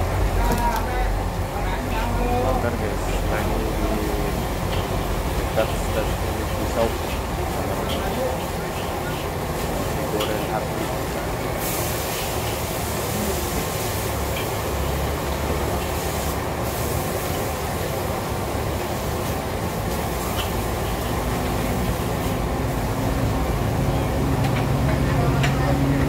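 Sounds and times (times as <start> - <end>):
road traffic rumble: 0.0 - 26.0
low engine hum: 20.6 - 26.0.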